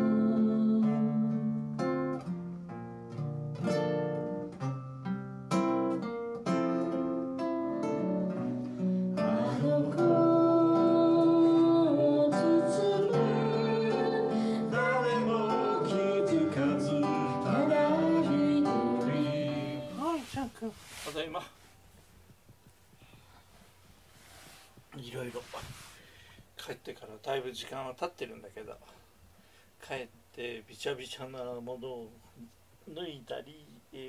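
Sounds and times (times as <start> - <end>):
person singing: 0.0 - 1.6, 9.2 - 20.3
fingerpicked acoustic guitar: 0.0 - 27.8.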